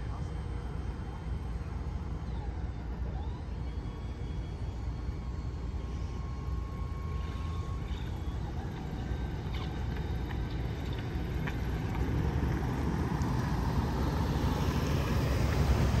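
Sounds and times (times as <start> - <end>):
road vehicle passing: 8.1 - 16.0.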